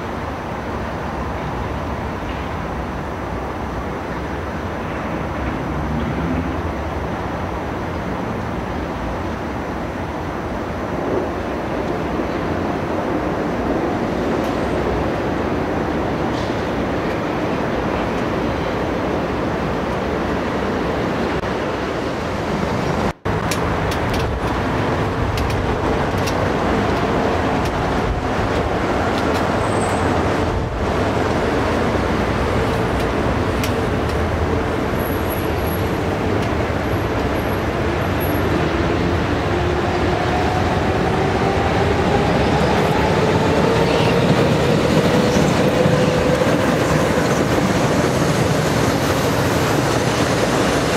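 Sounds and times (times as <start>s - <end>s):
train wheels rumbling on rails: 0.0s - 50.9s
train whine rising in pitch: 38.6s - 50.9s.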